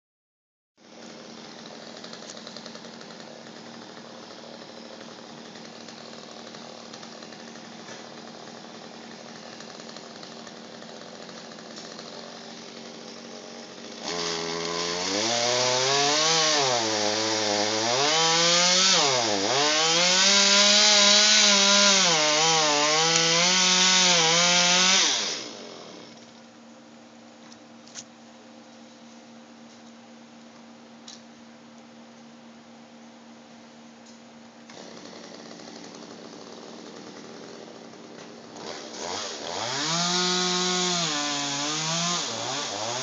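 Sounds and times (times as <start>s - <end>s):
chainsaw cutting wood: 0.8s - 26.4s, 34.7s - 43.0s.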